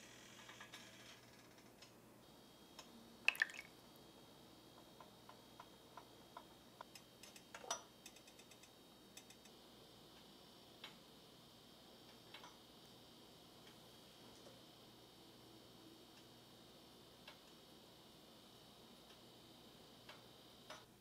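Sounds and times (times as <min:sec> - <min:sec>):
glass beakers clinking: 0:03.3 - 0:03.7.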